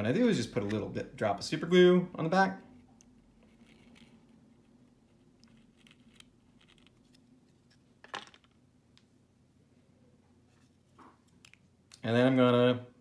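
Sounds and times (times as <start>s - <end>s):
plastic parts handling: 3.3s - 8.6s.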